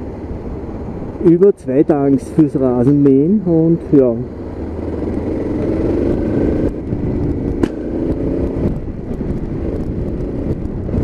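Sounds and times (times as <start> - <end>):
low road rumble: 0.0 - 11.0
motorcycle engine running: 3.4 - 11.0.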